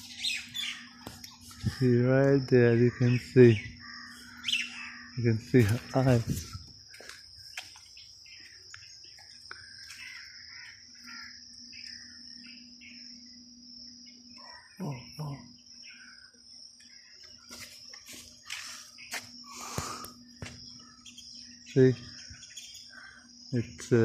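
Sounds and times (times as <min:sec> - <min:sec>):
birds chirping: 0:00.0 - 0:24.0
high insect trill: 0:00.0 - 0:24.0.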